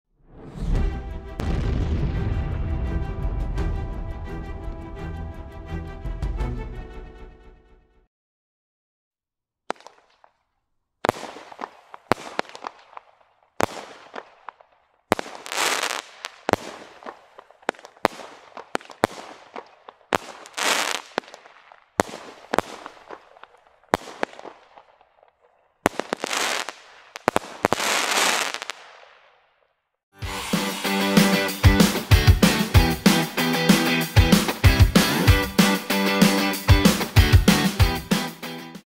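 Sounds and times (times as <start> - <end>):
firework crackle: 9.7 - 10.4, 11.0 - 29.5
firework shots: 9.7 - 10.4, 11.0 - 29.6.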